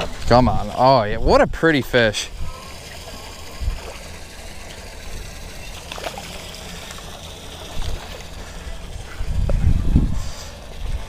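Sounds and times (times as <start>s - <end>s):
fish thrashing and splashing: 2.4s - 9.2s.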